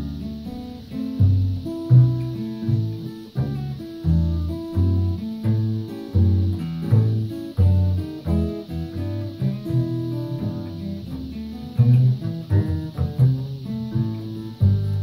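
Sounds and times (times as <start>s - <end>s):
acoustic guitars playing: 0.0s - 15.0s.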